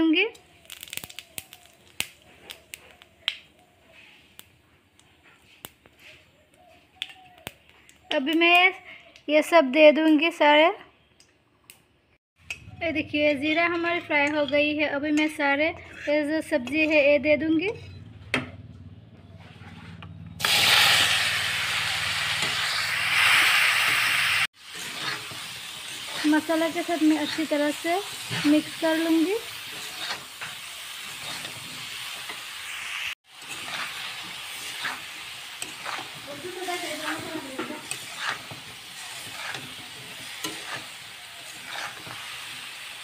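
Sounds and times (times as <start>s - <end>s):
vegetables sizzling in hot oil: 0.4s - 2.6s, 20.4s - 43.0s
spatula scraping pan: 13.2s - 18.2s, 19.4s - 20.1s, 24.6s - 32.4s, 33.3s - 43.0s.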